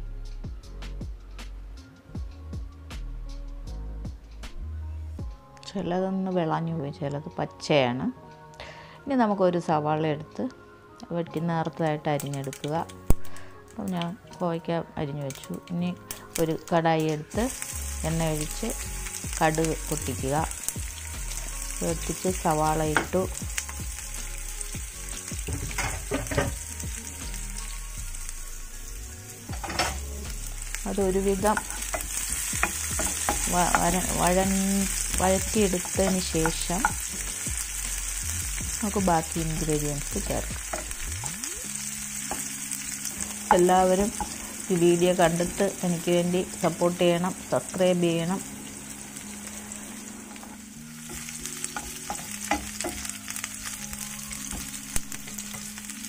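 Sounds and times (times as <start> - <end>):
onions sizzling in oil: 11.6 - 14.1, 15.2 - 56.0.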